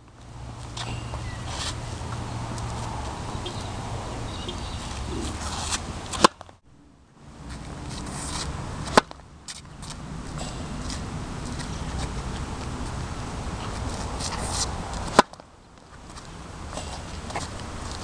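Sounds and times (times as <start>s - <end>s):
tennis racket hitting ball: 4.6s - 6.5s, 7.9s - 9.6s, 13.6s - 15.4s
low wind rumble on microphone: 7.2s - 18.0s.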